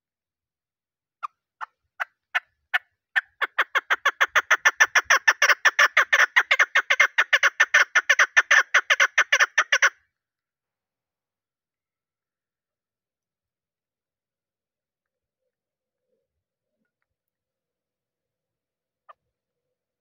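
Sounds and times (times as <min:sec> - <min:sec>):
partridge clucking calls: 0:01.2 - 0:10.0.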